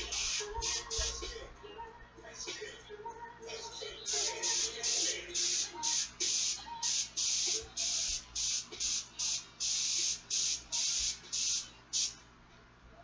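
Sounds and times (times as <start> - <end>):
airbrush spraying in hissing bursts: 0.0 - 1.2, 4.1 - 12.2.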